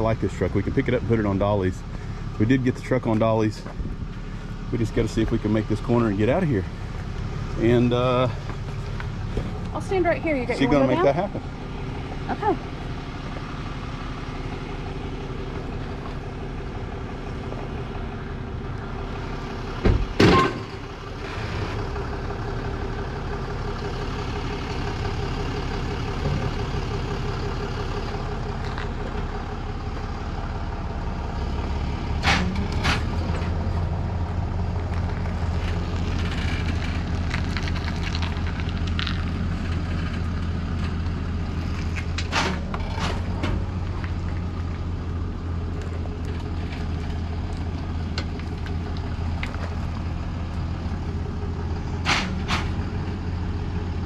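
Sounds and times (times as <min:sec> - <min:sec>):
tow truck engine running: 0:00.0 - 0:54.0
loud sharp clunk: 0:52.0 - 0:52.8.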